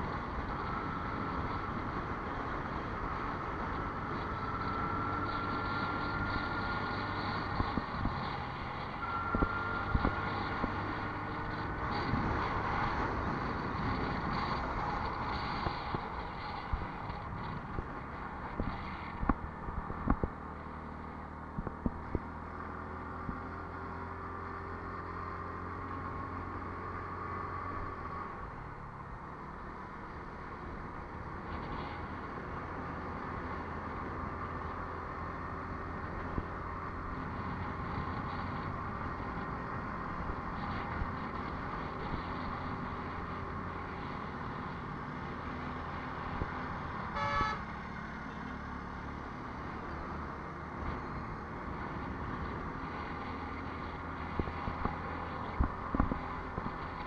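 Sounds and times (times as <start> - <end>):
road noise: 0.0 - 57.0
car horn toot: 47.1 - 47.7.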